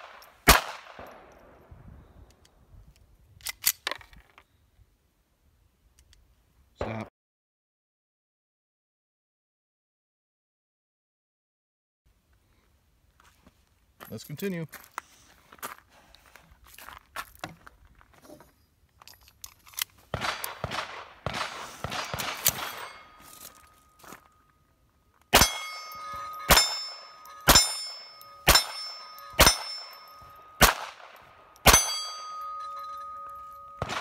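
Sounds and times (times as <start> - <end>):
pistol shots: 0.0 - 1.3, 20.1 - 23.2, 25.3 - 34.0
pistol clicking and rattling: 19.0 - 20.7, 21.9 - 23.2
steel plate target ringing: 22.0 - 24.5, 25.3 - 34.0.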